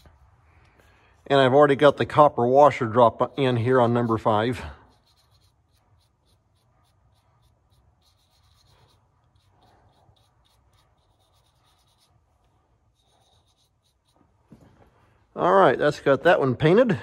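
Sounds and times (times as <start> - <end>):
small brush scratchy strokes: 0.0 - 15.2.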